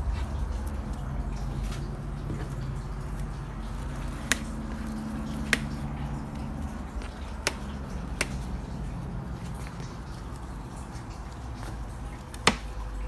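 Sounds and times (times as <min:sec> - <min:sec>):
low steady hum: 0:00.0 - 0:13.0
strawberries snapping off plants: 0:03.9 - 0:08.7.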